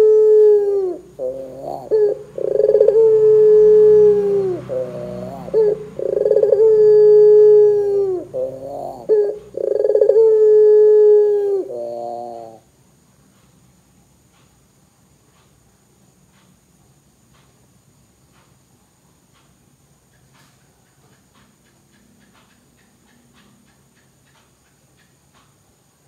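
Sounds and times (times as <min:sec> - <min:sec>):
dove chuckling notes: 0:00.0 - 0:12.6
dove cooing: 0:00.0 - 0:12.6.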